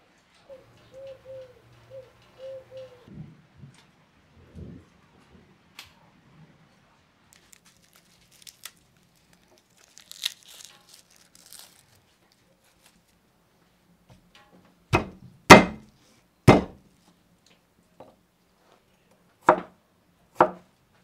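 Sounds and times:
garlic skin crackling and rustling: 0:07.3 - 0:13.2.

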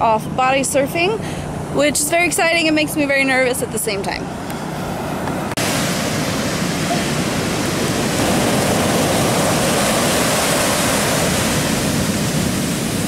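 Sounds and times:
ocean surf breaking on sand: 0:04.5 - 0:13.0.

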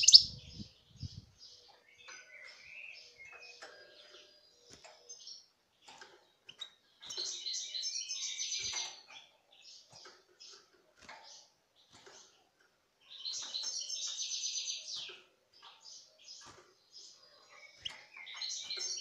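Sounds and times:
goldfinch chirps and twittering: 0:00.0 - 0:19.0.

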